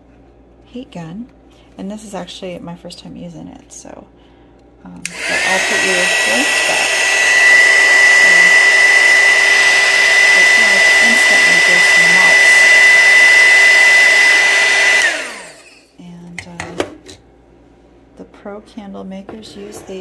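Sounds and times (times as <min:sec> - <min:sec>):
heat gun blowing with fan whine: 0:05.0 - 0:16.0.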